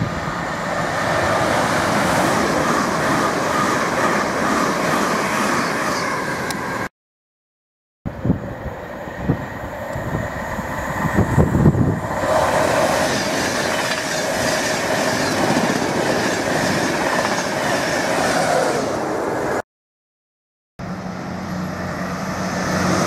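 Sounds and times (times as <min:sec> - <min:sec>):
train rushing past: 0:00.0 - 0:06.9, 0:08.1 - 0:19.6, 0:20.8 - 0:23.0.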